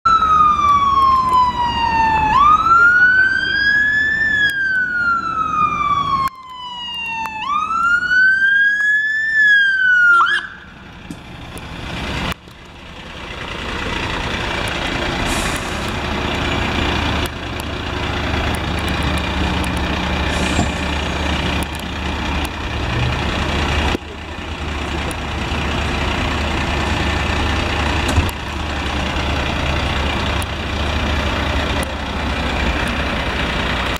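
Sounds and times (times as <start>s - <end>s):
emergency siren wailing: 0.1s - 10.8s
diesel engine passing: 0.1s - 33.9s.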